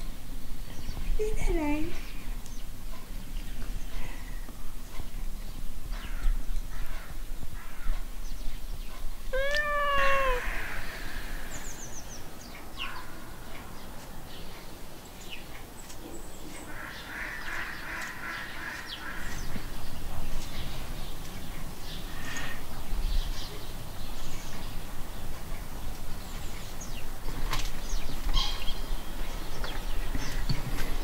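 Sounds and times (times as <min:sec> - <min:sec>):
cat meowing: 0:09.3 - 0:10.7.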